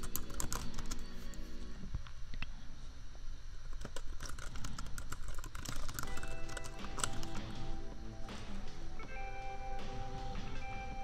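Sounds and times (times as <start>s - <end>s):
keyboard typing: 0.0s - 1.7s, 3.7s - 7.9s
soft lofi music: 0.0s - 11.0s.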